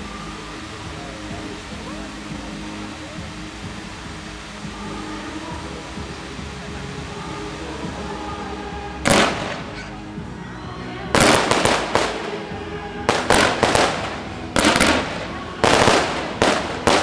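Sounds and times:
fireworks crackling: 0:00.0 - 0:17.0
fireworks bangs: 0:09.0 - 0:09.9, 0:11.1 - 0:17.0.

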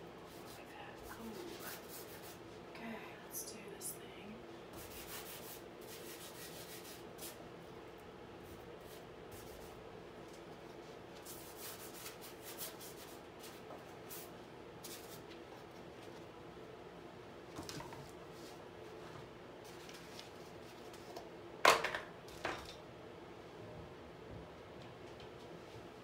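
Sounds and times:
faint steady hum: 0:00.0 - 0:26.0
paintbrush strokes on canvas: 0:00.2 - 0:02.7, 0:04.7 - 0:07.4, 0:08.4 - 0:16.2.

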